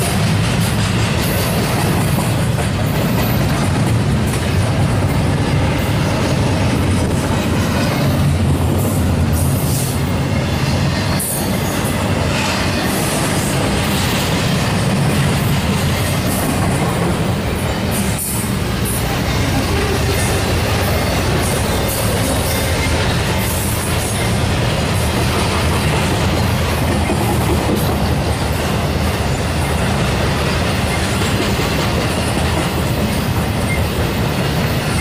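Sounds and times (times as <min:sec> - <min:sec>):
train wheels rumbling on rails: 0:00.0 - 0:35.0.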